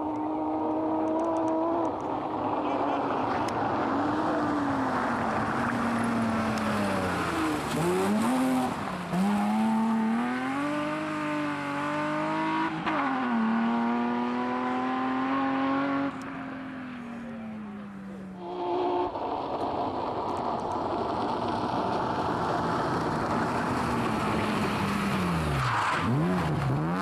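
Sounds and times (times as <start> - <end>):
rally car engine accelerating: 0.0 - 16.2.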